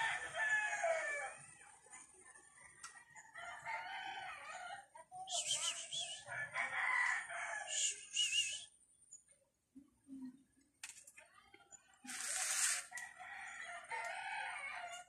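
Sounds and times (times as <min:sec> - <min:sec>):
roosters crowing: 0:00.0 - 0:01.5, 0:06.2 - 0:08.0, 0:12.6 - 0:15.0.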